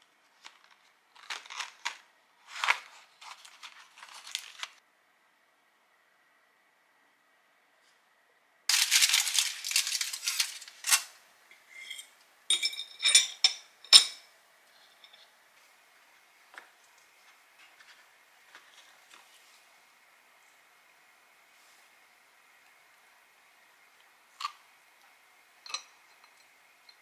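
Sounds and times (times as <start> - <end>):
aluminium foil crinkling: 0.0 - 4.8, 8.7 - 11.2
faint handling noises: 0.0 - 4.8, 16.5 - 19.7.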